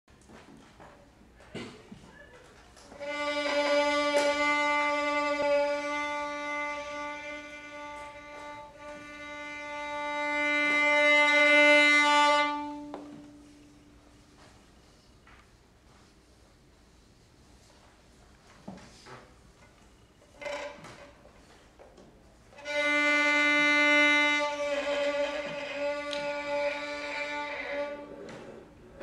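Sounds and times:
violin sustained note: 2.9 - 14.5, 22.6 - 28.4.

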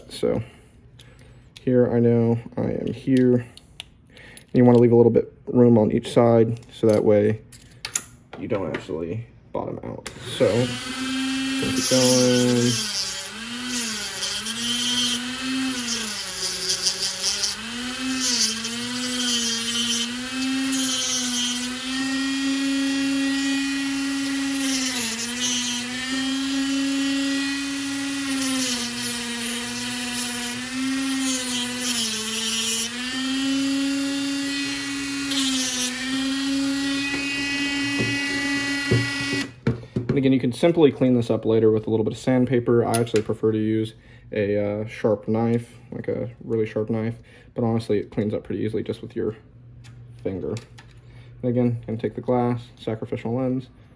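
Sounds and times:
rotary tool cutting wheel whine: 10.1 - 39.6.

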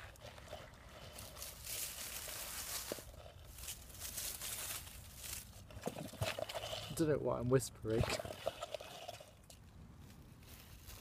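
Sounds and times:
dry leaves rustling and crackling: 0.0 - 5.7, 10.0 - 11.0.

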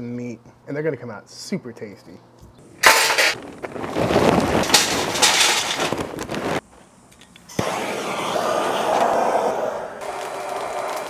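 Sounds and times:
charcoal clattering into metal chimney: 2.8 - 6.6
hand torch hissing: 7.6 - 11.0.

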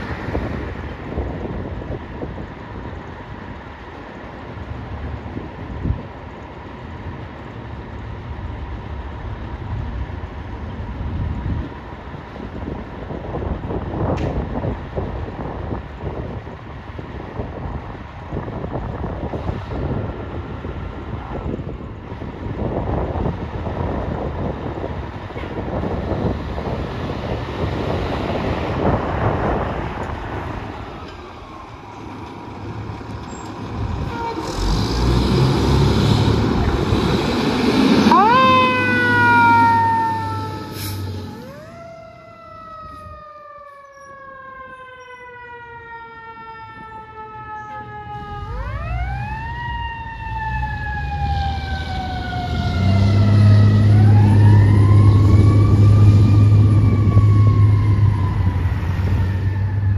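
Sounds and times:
diesel engine under load: 0.0 - 43.2, 46.8 - 59.9
siren wailing: 37.9 - 59.9.

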